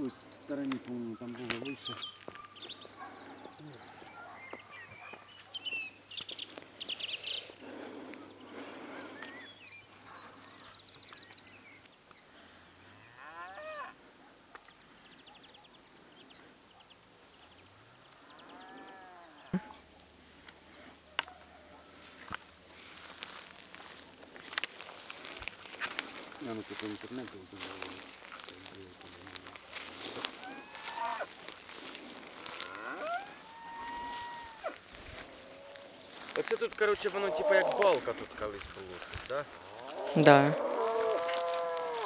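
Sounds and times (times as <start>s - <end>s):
cattle mooing: 13.0s - 13.9s, 18.2s - 19.8s, 30.4s - 31.3s, 32.4s - 36.1s, 37.1s - 38.0s, 39.6s - 42.0s.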